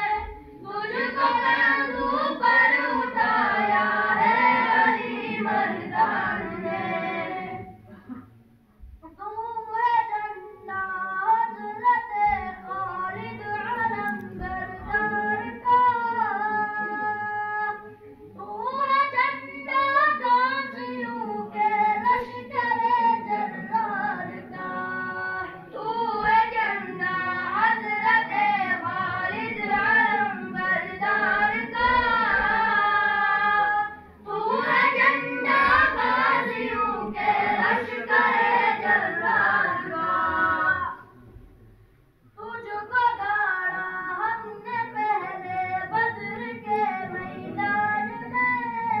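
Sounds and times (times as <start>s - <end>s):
boy singing unaccompanied: 9.1s - 41.0s, 42.4s - 49.0s.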